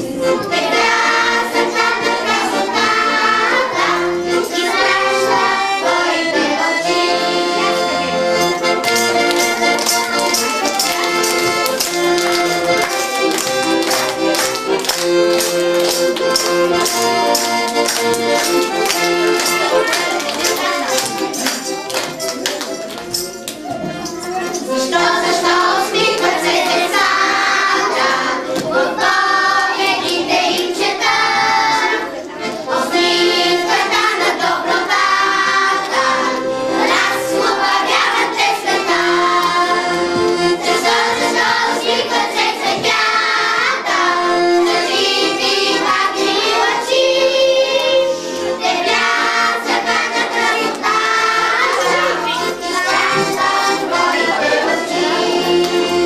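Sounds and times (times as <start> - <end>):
children singing in unison: 0.0 - 8.7, 24.7 - 56.0
accordion: 0.0 - 56.0.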